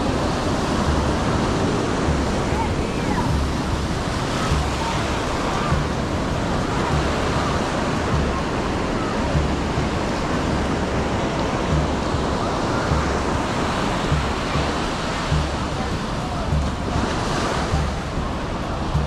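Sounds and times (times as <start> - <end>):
distant voices: 0.0 - 19.0
ocean surf breaking on sand: 0.0 - 19.0.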